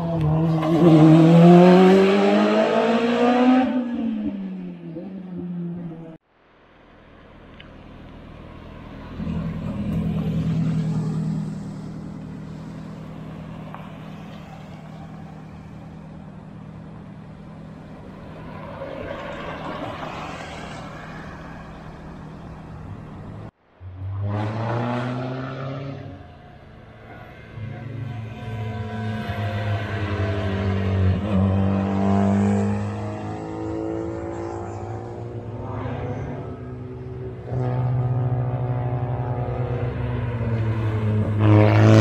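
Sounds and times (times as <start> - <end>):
race car engine revving up: 0.0 - 5.8, 24.0 - 26.2
race car engine at steady revs: 0.0 - 6.2
road noise: 0.0 - 42.0.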